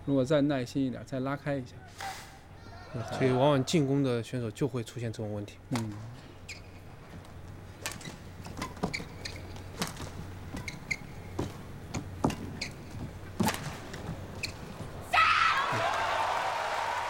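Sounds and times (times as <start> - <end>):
shoes squeaking on court: 5.9 - 15.1.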